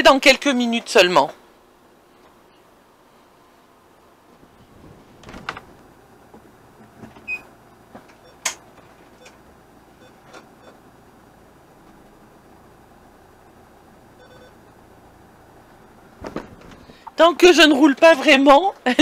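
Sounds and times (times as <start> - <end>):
van engine running faintly: 5.7 - 17.1
sharp clicks and knocks: 7.9 - 9.4.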